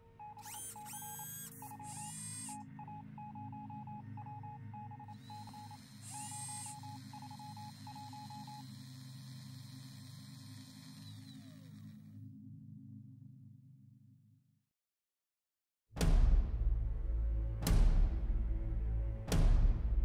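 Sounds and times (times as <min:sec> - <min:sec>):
computer bleeps: 0:00.0 - 0:08.6
rising electronic chirps: 0:00.1 - 0:08.9.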